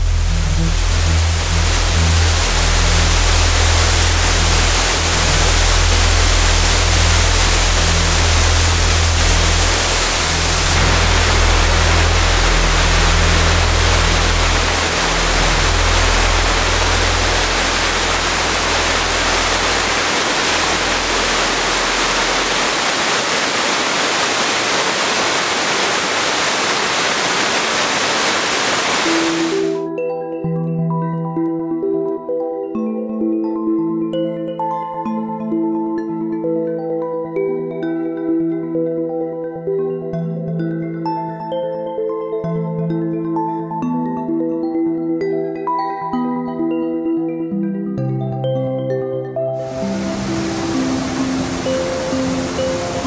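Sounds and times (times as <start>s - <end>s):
low musical drone: 0.0s - 23.2s, 28.9s - 53.0s
waterfall rushing: 0.0s - 29.9s, 49.6s - 53.0s.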